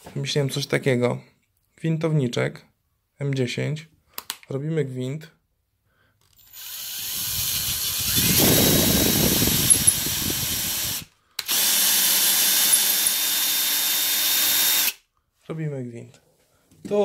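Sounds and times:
cordless drill tapping thread: 6.3 - 15.0.

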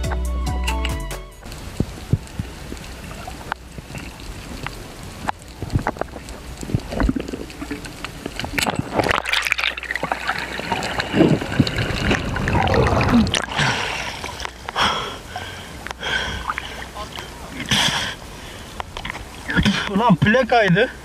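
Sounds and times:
water sloshing and gurgling: 1.4 - 21.0
bubbling: 1.5 - 20.2
splashes: 1.5 - 21.0.

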